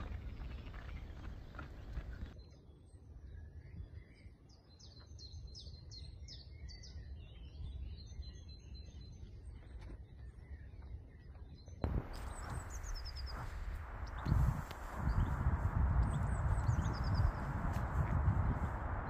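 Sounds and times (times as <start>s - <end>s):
songbird chirping: 0.0s - 19.0s
low rumble: 11.8s - 19.0s.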